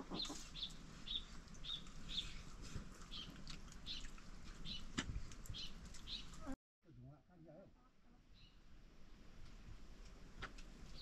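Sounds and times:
small bird chirping: 0.0 - 2.4.

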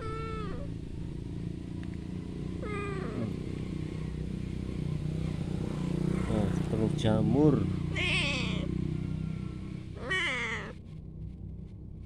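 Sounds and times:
cat meowing: 0.0 - 0.7, 2.6 - 3.4, 7.9 - 8.7, 10.0 - 10.8
low hum: 8.8 - 12.0.

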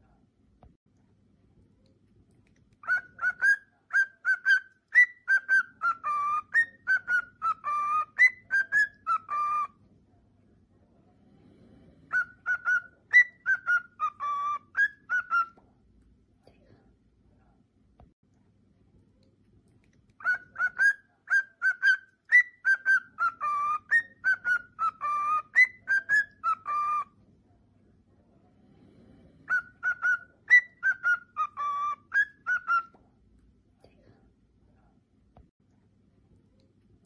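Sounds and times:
cockatiel whistling song: 2.8 - 9.8, 12.1 - 15.6, 20.2 - 27.2, 29.4 - 33.0.

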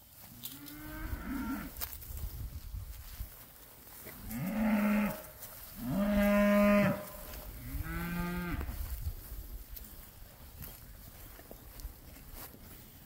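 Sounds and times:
cows mooing: 4.2 - 8.7.

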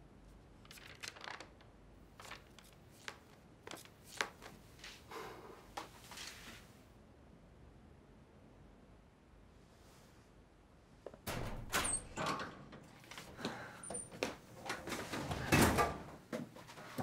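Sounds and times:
paper rustling: 0.6 - 5.1, 5.8 - 6.7.

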